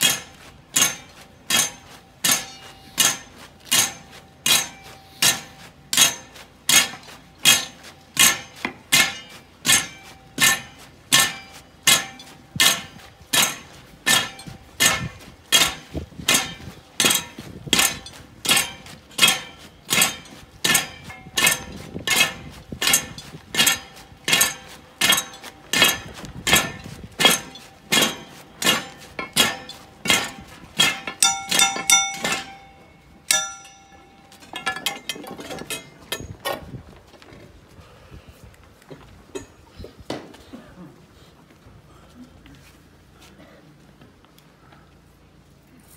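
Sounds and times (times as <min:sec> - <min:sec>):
sharp metallic clacks: 0:00.0 - 0:36.6.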